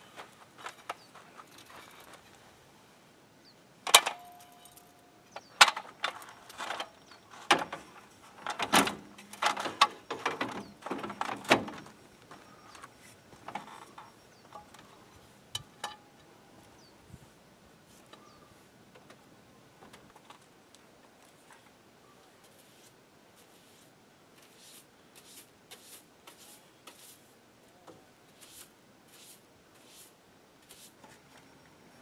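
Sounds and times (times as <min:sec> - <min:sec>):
metal ladder clanking and rattling: 0:03.9 - 0:05.0, 0:05.6 - 0:11.9.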